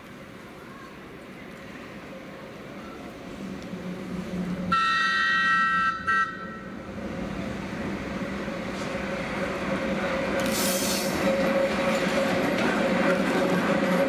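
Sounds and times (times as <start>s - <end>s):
train rumbling on rails: 0.0s - 14.0s
train whistle: 4.7s - 6.7s
brief hiss: 10.4s - 11.2s.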